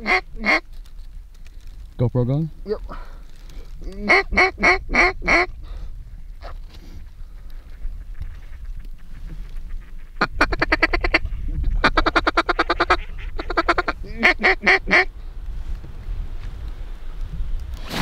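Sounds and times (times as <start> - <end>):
low rumble of wind: 0.0 - 18.0
duck quacking rapidly: 4.0 - 5.5, 11.8 - 15.1.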